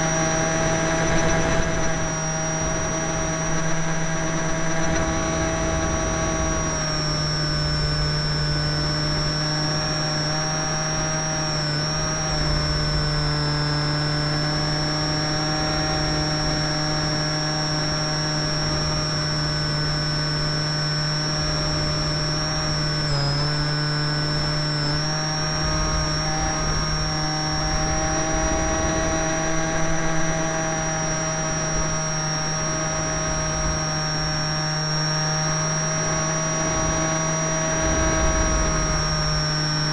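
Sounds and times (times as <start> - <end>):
model aeroplane motor whining: 0.0 - 39.9
low wind rumble: 35.5 - 39.9.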